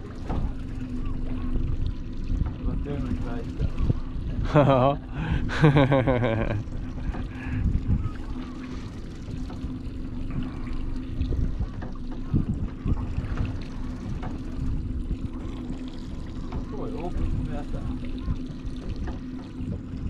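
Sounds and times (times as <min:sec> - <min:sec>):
water noise: 0:00.0 - 0:20.0
wind: 0:00.0 - 0:20.0
man laughing: 0:04.4 - 0:07.0.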